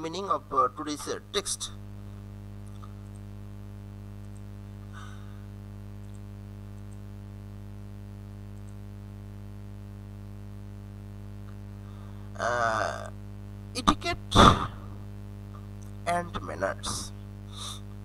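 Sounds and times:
low electrical hum: 0.0s - 18.0s
faint clicks: 2.6s - 3.3s, 4.2s - 4.5s, 6.0s - 7.1s, 8.5s - 8.8s.

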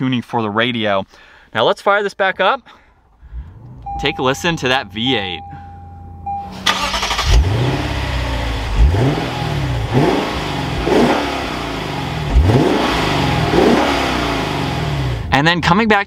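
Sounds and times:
engine cranking and starting: 6.2s - 9.1s
engine revving: 6.2s - 15.3s.

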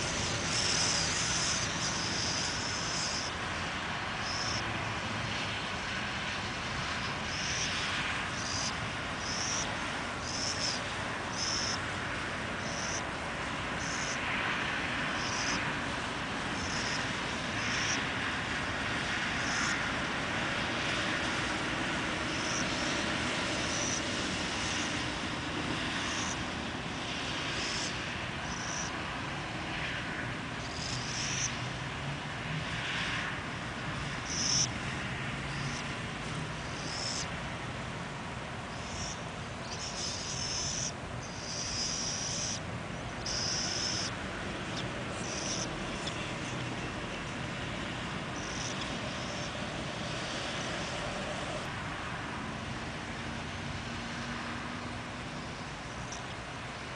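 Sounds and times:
distant engine noise: 0.0s - 56.9s.

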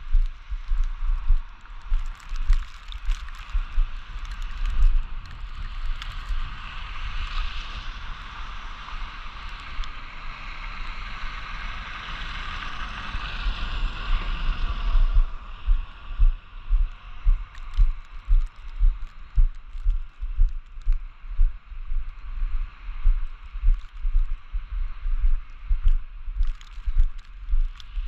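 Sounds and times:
low thumps from walking: 0.0s - 6.0s, 14.9s - 28.0s.

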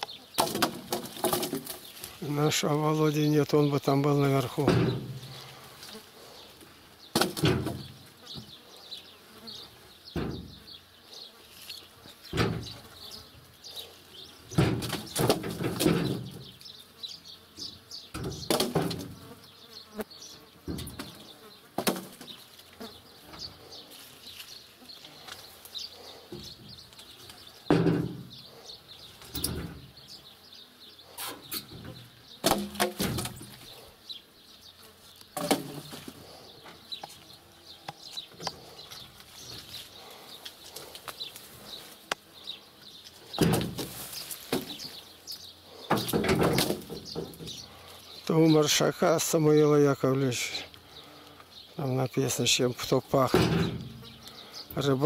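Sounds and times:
logs thudding onto ground: 0.4s - 2.0s, 4.5s - 5.4s, 7.1s - 8.1s, 14.5s - 16.6s, 18.1s - 19.2s, 21.8s - 22.4s, 27.7s - 28.3s, 31.6s - 33.8s, 35.4s - 36.3s, 43.2s - 45.0s, 45.9s - 47.5s, 53.2s - 54.2s.

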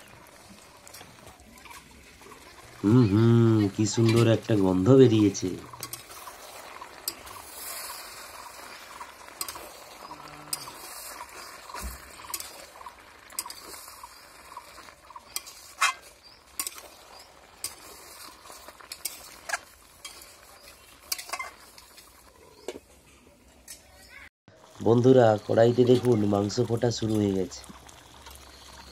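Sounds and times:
curry sizzling: 0.0s - 28.9s
metal spatula scraping a pan: 3.6s - 14.4s, 15.2s - 22.6s.

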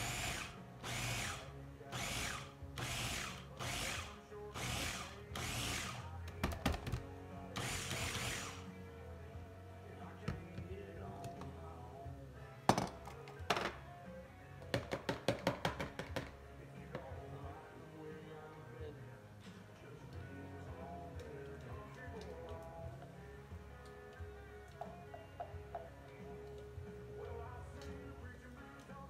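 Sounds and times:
electric food chopper whirring: 0.0s - 1.4s
background music: 0.0s - 29.0s.

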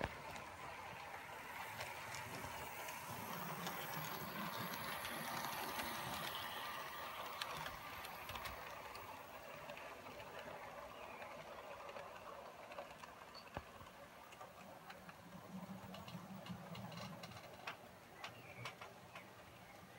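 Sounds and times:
small clicks of wheels on track: 0.0s - 19.9s
model train motor whirring: 0.3s - 14.4s.

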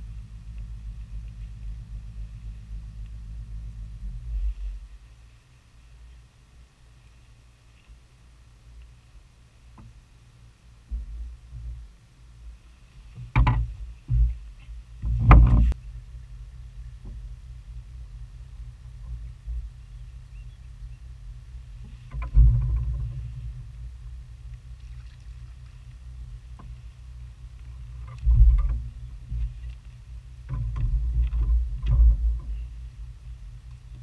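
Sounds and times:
steady low rumble: 0.0s - 34.0s
knocks and thumps on a boat: 10.9s - 11.9s, 13.0s - 15.8s, 17.0s - 17.3s, 21.8s - 23.8s, 27.6s - 33.0s.

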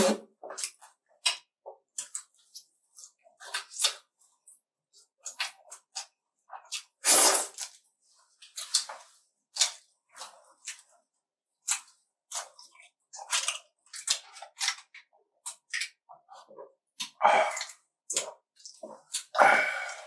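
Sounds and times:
crisp chewing: 11.6s - 16.4s.

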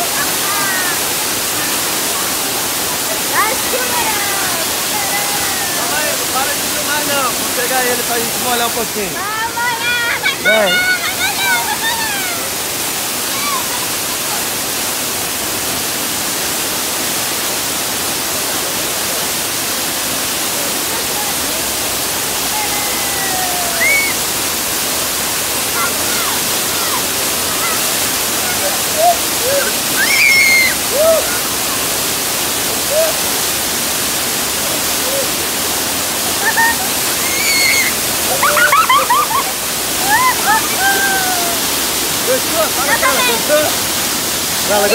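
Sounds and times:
waterfall rushing over rock: 0.0s - 44.9s
people crying out: 28.5s - 31.5s, 36.3s - 41.7s.

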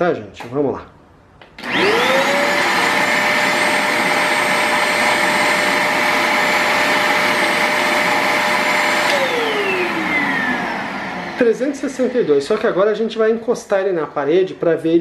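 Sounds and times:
handheld vacuum cleaner whining: 1.6s - 12.7s.

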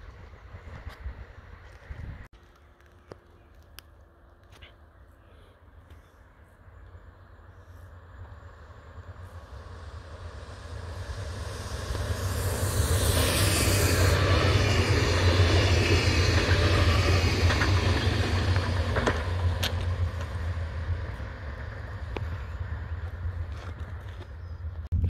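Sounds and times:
electric train passing: 6.9s - 24.7s
sharp clicks of train cars: 15.4s - 20.4s.

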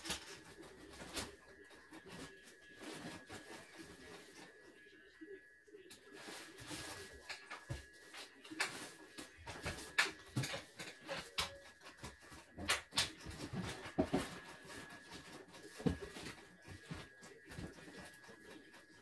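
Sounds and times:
faint steady high tone: 0.4s - 8.6s
hand tools clicking and tapping: 9.4s - 18.2s.

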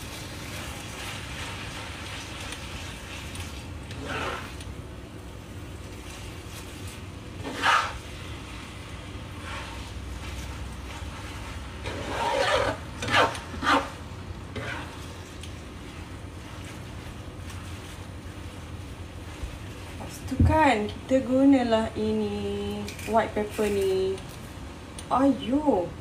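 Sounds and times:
spatula scraping a wok: 0.0s - 4.6s, 6.8s - 18.0s.

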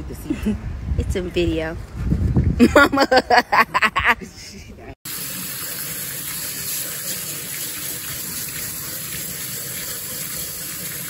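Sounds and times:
tap water splashing on potatoes: 5.1s - 11.0s.

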